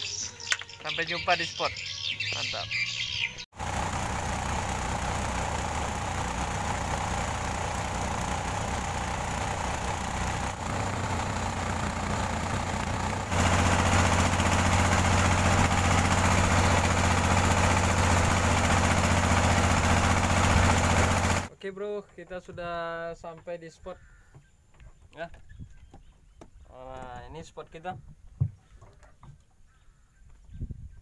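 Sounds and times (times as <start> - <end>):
motorboat engine running: 3.5 - 21.5.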